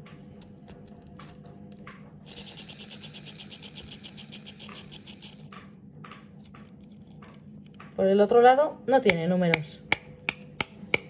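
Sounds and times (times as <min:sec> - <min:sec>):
fidget spinner whirring: 0:02.2 - 0:05.6.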